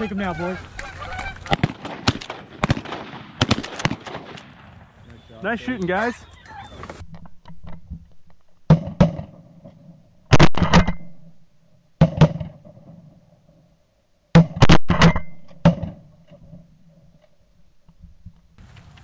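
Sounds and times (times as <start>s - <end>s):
shotgun blasts: 1.4s - 5.0s, 10.3s - 11.1s.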